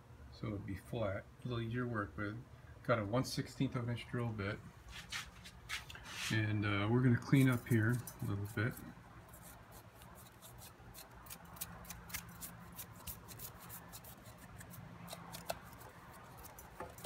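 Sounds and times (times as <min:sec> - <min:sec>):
brush sweeping metal chips: 0:05.0 - 0:06.5, 0:07.2 - 0:10.6.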